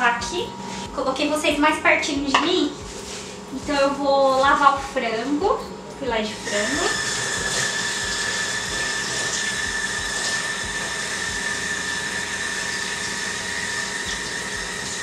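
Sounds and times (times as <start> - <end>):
kitchen tap running: 6.2 - 15.0.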